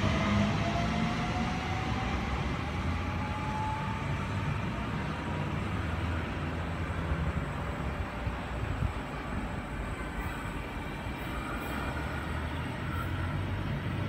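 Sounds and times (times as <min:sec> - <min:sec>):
wheels rumbling on track: 0:00.0 - 0:14.0.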